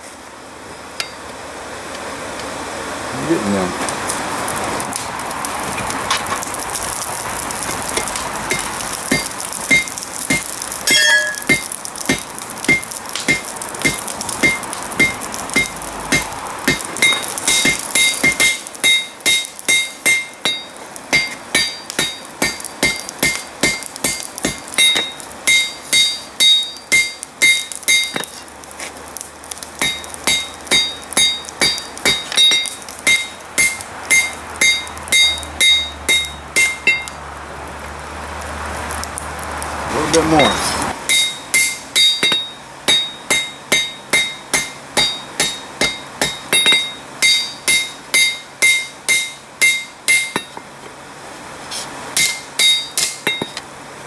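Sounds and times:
hammer striking steel on anvil: 1.0s - 1.2s, 8.5s - 28.4s, 29.8s - 37.1s, 41.1s - 50.7s, 52.2s - 53.6s.

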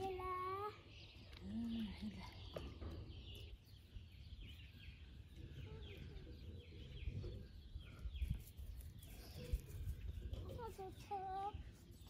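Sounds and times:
birds chirping faintly: 0.0s - 12.0s.

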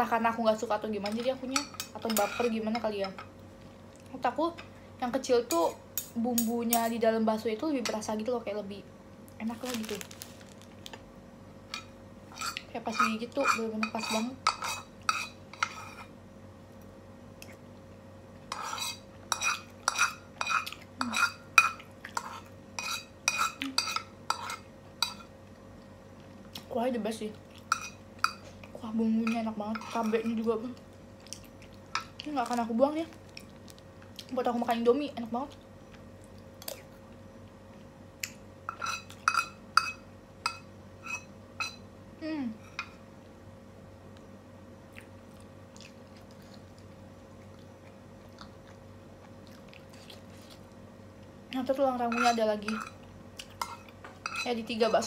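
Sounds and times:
metal spoon scraping a pan: 1.0s - 2.8s, 12.3s - 16.1s, 18.5s - 25.3s, 29.2s - 30.4s, 38.7s - 41.8s, 52.1s - 53.0s, 53.6s - 55.0s
metal spoon clinking on a pan: 38.7s - 41.8s, 52.1s - 53.0s, 53.6s - 54.5s.

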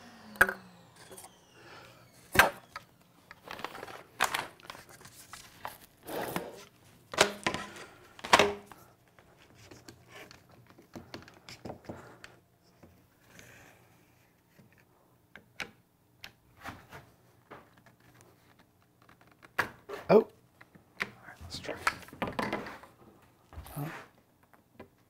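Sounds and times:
hollow plastic knocks and clatters: 21.8s - 23.0s.

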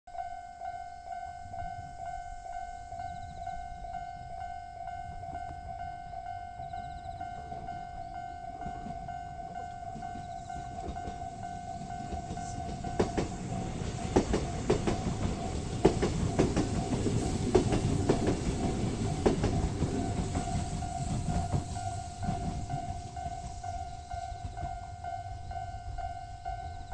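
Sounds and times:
electric train passing: 0.1s - 26.9s
level-crossing alarm ringing: 0.1s - 26.9s
wheel clacks over rail joints: 8.6s - 24.8s.

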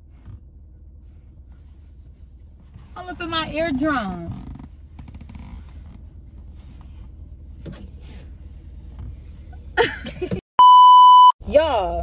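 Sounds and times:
car interior rumble: 0.0s - 10.4s
high-pitched electronic bleep: 10.6s - 11.4s.

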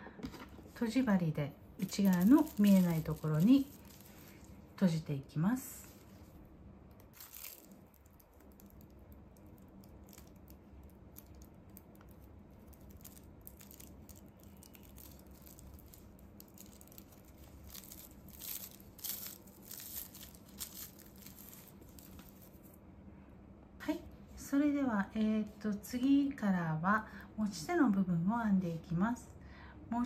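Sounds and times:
faint steady hum: 0.0s - 30.0s
plastic tape crinkling: 1.8s - 4.6s, 6.9s - 22.8s.

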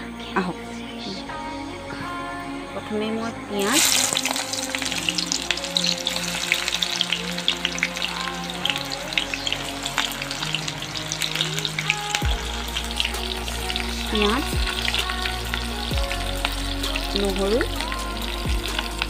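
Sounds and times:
onions sizzling in hot oil: 3.6s - 8.8s.

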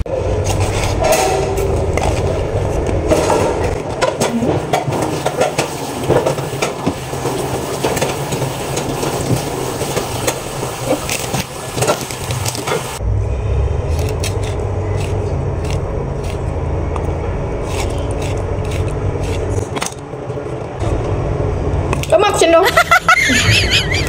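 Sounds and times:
tap water running and splashing: 4.8s - 13.0s
steady low hum: 12.4s - 24.0s
knife scraping fish: 14.0s - 16.5s, 17.6s - 20.0s.

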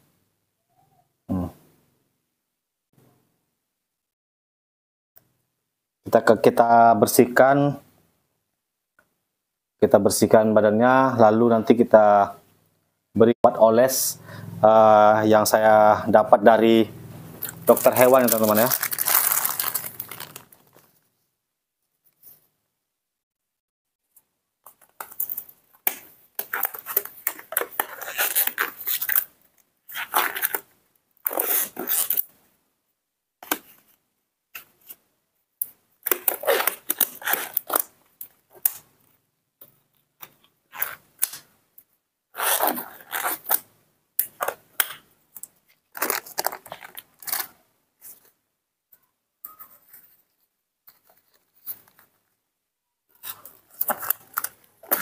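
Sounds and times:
gloves rustling and crinkling: 17.4s - 22.4s, 24.6s - 32.3s, 35.9s - 41.5s, 42.3s - 48.4s, 49.8s - 52.4s, 53.1s - 55.0s.

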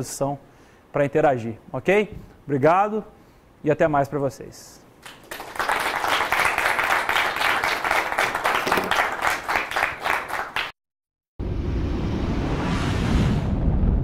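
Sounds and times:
audience applauding: 5.0s - 10.8s
low rushing noise: 11.4s - 14.0s.

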